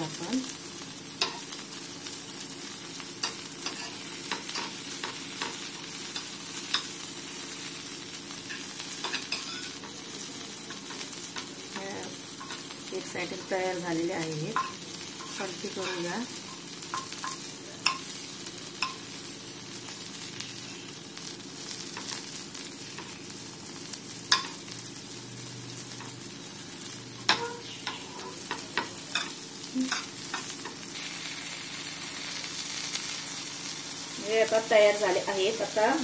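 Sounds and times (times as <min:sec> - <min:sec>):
meat sizzling in hot oil: 0:00.0 - 0:36.0
metal utensil scraping pan: 0:03.2 - 0:05.7, 0:08.5 - 0:10.0.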